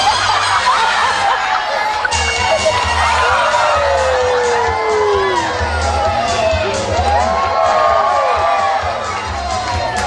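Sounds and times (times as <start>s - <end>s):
audience cheering and whooping: 0.0s - 10.0s
music with low beat: 2.0s - 7.6s.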